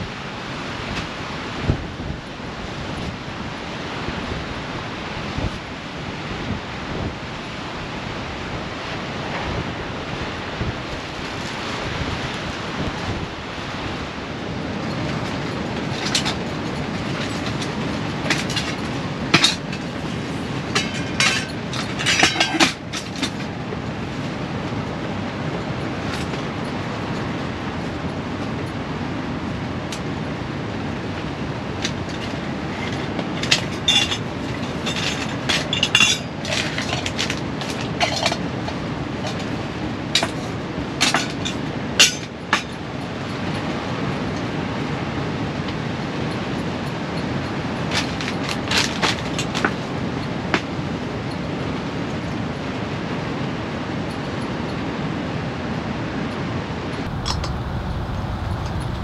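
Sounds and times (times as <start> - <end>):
storm wind and rain on tent: 0.0 - 59.0
camping gear clicking and knocking: 15.0 - 23.5, 32.9 - 39.6, 57.0 - 59.0.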